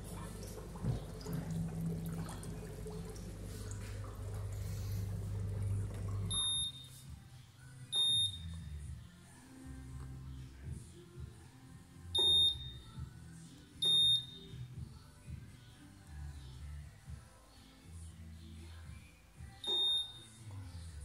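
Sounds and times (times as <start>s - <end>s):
churning water: 0.0s - 6.3s
bathtub jet pump humming: 0.0s - 6.8s
control panel beeps: 6.3s - 6.9s, 8.0s - 8.5s, 13.8s - 14.4s.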